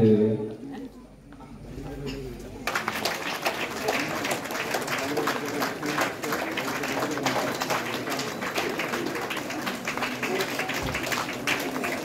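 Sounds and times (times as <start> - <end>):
audience clapping: 2.6 - 12.0.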